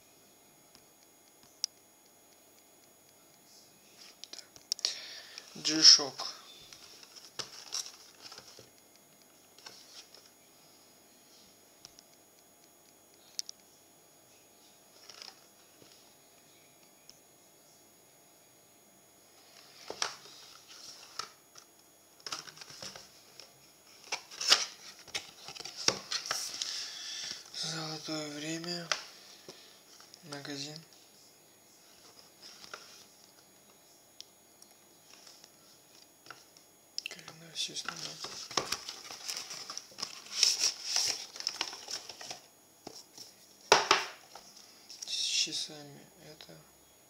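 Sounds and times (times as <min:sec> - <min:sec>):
paper packaging rustling: 0:05.6 - 0:08.7, 0:15.0 - 0:15.5, 0:22.2 - 0:30.4, 0:37.6 - 0:44.6.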